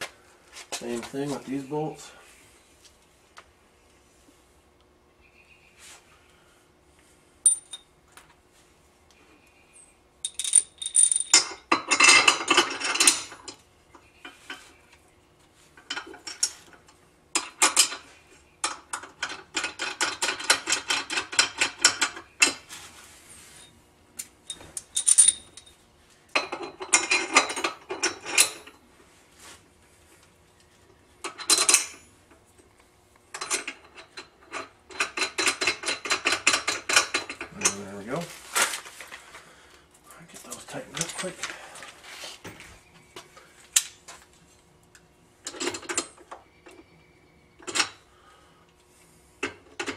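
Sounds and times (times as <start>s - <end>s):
metal clinks: 7.5s - 7.9s, 10.2s - 13.6s, 24.5s - 25.8s.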